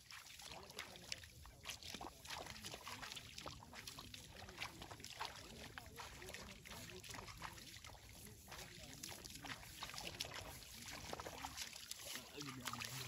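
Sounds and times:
paddy water sloshing: 0.0s - 13.0s
short irregular splashes: 0.0s - 13.0s.

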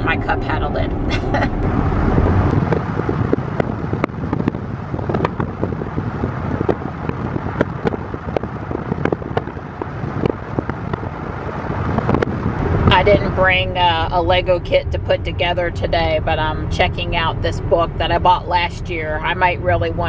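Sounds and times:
road and tyre noise: 0.0s - 20.0s.

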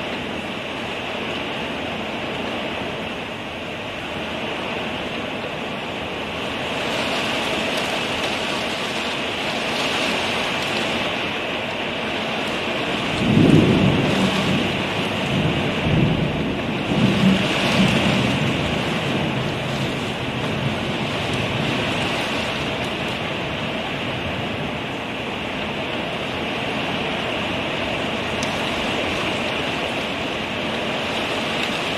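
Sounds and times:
torrential rain pouring: 0.0s - 31.9s
thunder rumbling: 12.6s - 31.9s.

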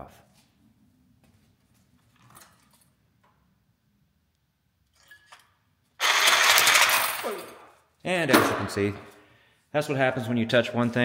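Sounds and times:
reciprocating saw cutting metal: 6.0s - 7.4s.

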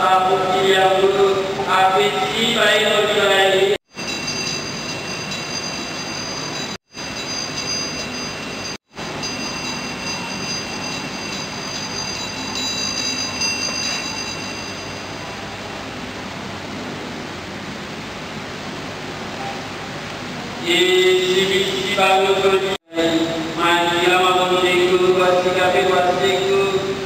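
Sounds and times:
faint high whining tones: 0.0s - 16.6s.

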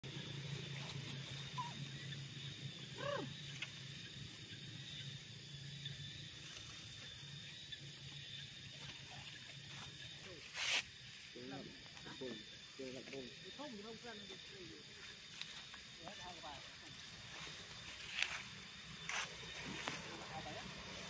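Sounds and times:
animal call: 1.3s - 2.2s, 2.8s - 3.6s.

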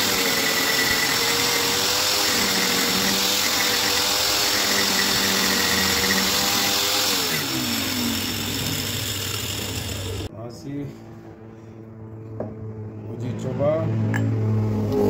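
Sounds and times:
juicer motor whining: 0.0s - 10.3s.

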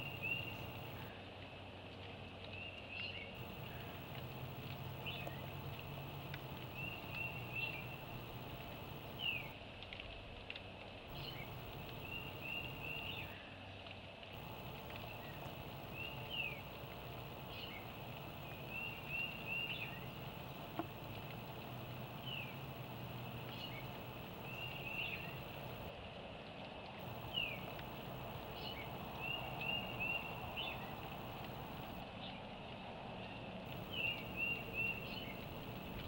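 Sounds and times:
small bird singing: 0.0s - 1.1s, 3.0s - 9.5s, 11.1s - 13.4s, 14.4s - 25.9s, 27.1s - 32.0s, 33.7s - 36.0s
steady low hum: 0.0s - 1.1s, 3.4s - 9.6s, 11.1s - 13.4s, 14.4s - 25.9s, 27.0s - 32.0s, 33.7s - 36.0s.

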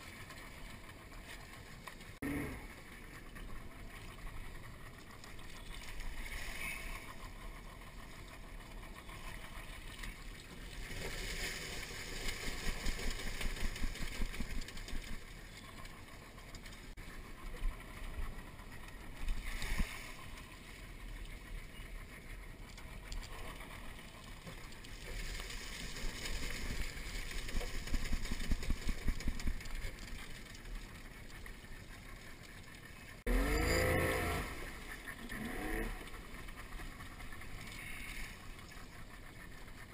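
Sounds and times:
outboard motor idling: 0.0s - 39.9s
water splashing: 9.2s - 17.0s, 23.2s - 32.6s
outboard motor revving: 32.9s - 39.9s.

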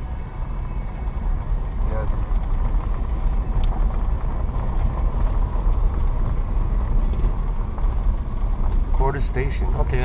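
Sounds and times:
vehicle engine and tyre rumble: 0.0s - 10.0s.

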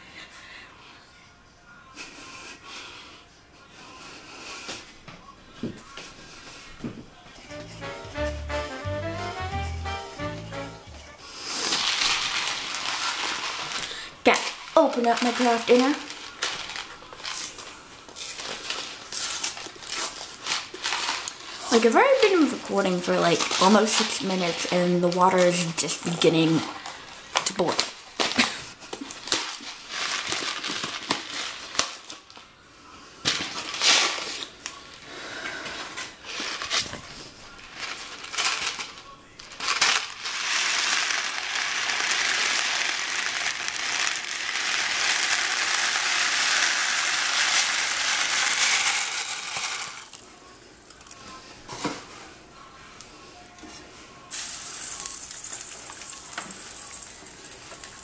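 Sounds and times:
dry macaroni pouring into pot: 11.5s - 17.5s, 39.5s - 51.2s, 54.3s - 58.0s.

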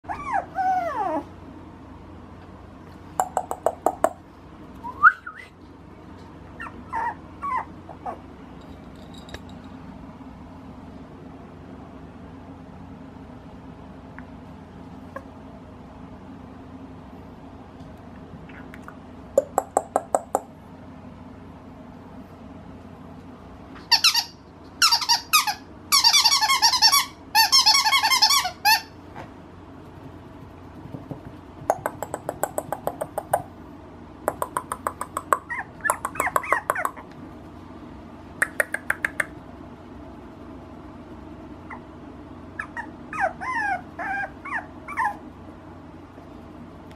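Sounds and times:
squeaky toy squeaking: 23.9s - 29.0s.

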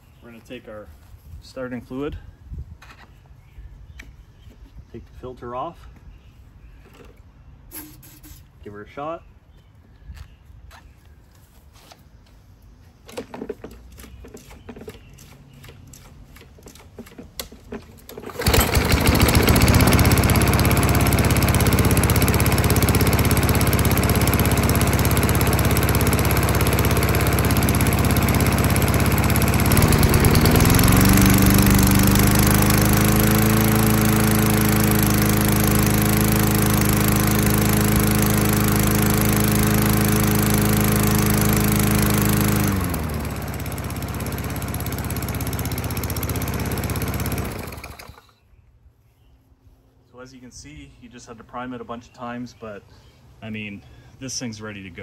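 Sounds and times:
lawn mower engine running: 13.1s - 48.4s.

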